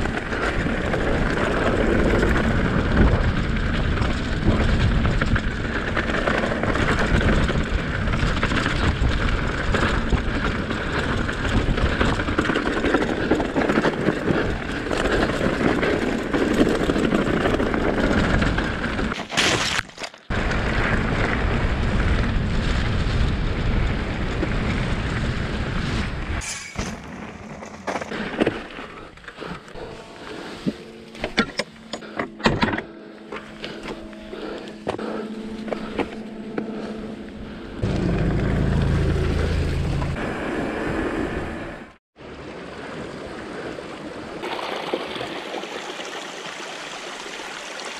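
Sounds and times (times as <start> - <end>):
bike tyres rattling and knocking: 0.0 - 21.0.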